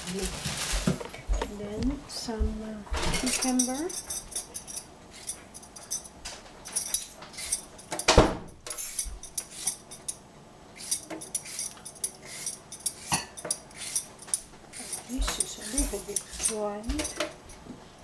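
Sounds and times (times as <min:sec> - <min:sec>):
peeler scraping cucumber skin: 0:13.7 - 0:14.1, 0:14.7 - 0:16.6.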